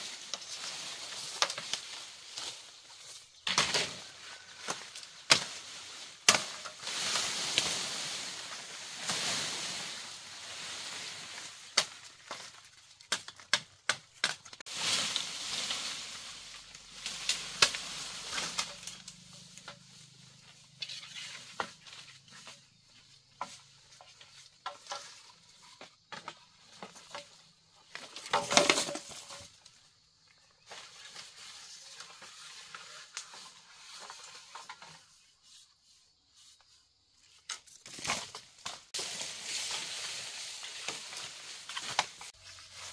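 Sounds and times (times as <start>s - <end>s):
bamboo leaves rustling: 0.0s - 42.9s
twigs crackling and snapping: 11.6s - 19.8s.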